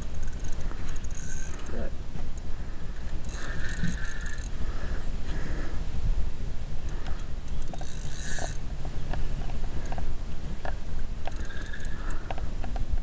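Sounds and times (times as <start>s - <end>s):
fishing reel clicks: 0.0s - 1.8s, 3.2s - 4.6s, 6.9s - 8.6s, 11.3s - 12.4s
fishing reel whirring: 0.0s - 1.9s, 2.9s - 4.6s, 6.8s - 8.6s, 11.2s - 12.3s
wind rumble on microphone: 0.0s - 13.0s.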